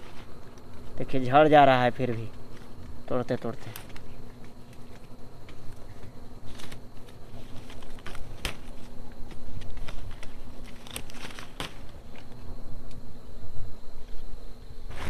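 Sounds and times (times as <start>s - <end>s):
leaves and twigs rustling: 0.0s - 15.0s
twigs snapping: 2.0s - 13.0s.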